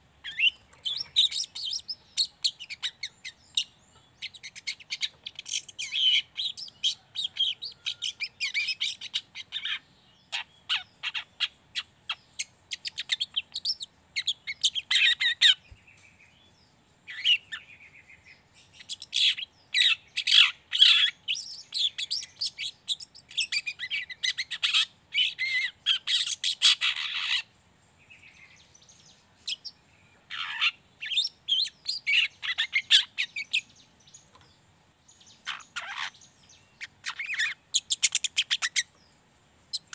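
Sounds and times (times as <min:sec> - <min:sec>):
bird scratchy chatter: 0:00.2 - 0:15.7, 0:18.7 - 0:27.6, 0:30.3 - 0:33.7, 0:35.4 - 0:39.0.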